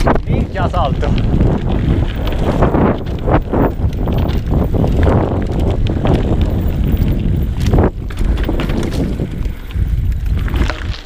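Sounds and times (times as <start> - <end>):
bike knocking and rattling: 0.0 - 11.0
bike tyre rumble: 0.0 - 11.0
wind on microphone: 0.0 - 11.0.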